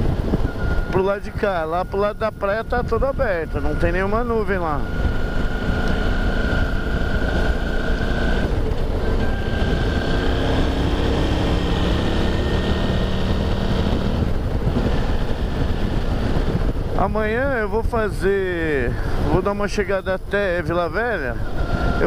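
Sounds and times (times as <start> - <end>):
motorcycle engine cruising: 0.0 - 19.5, 20.4 - 22.0
wind noise on microphone: 0.0 - 22.0
faint high whine: 0.4 - 5.2.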